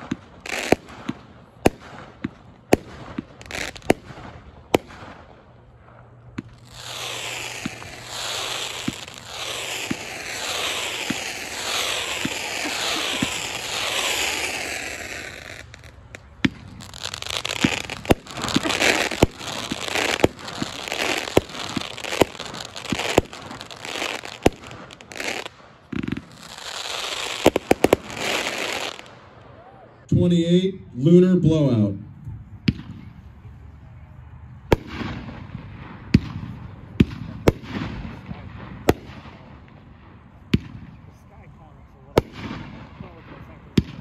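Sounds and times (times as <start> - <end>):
firework shots and crackling: 0.0 - 29.5, 32.6 - 33.1, 34.7 - 41.1, 42.1 - 44.0
falling firework whistles: 6.5 - 29.1.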